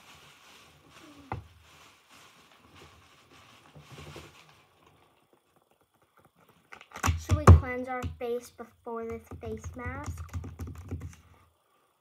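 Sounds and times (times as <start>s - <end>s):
rummaging with soft rustling: 0.0s - 6.4s.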